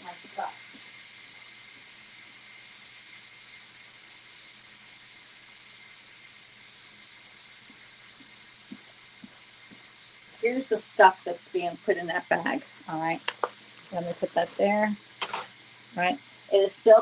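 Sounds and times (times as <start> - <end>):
steam hissing from pressure cooker: 0.0 - 17.0.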